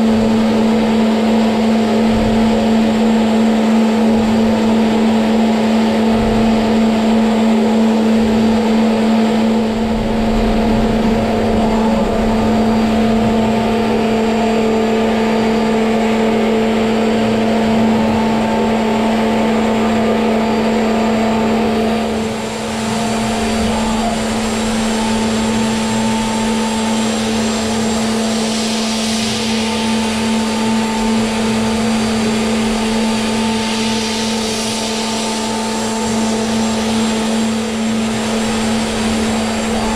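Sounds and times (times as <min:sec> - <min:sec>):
end mill cutting metal: 0:00.0 - 0:39.9
milling spindle steady tone: 0:00.0 - 0:39.9
hiss: 0:22.0 - 0:39.9.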